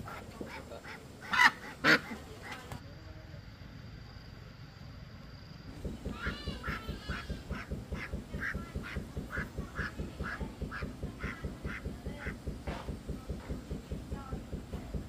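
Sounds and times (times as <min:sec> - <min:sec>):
ducks quacking: 0:00.0 - 0:02.8, 0:06.0 - 0:13.1.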